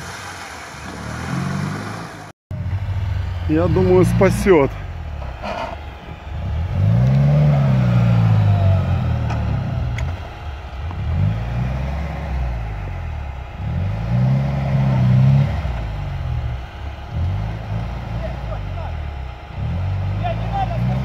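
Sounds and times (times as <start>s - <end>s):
jeep engine revving hard: 0.0s - 21.0s.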